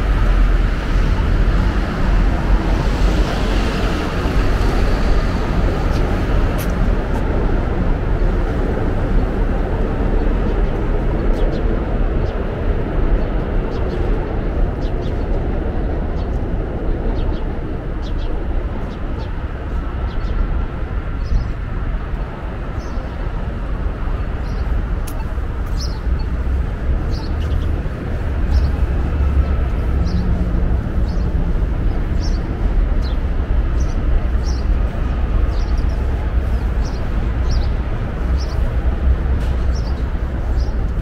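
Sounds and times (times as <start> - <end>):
traffic rumble: 0.0 - 41.0
small bird chirping: 24.4 - 26.3.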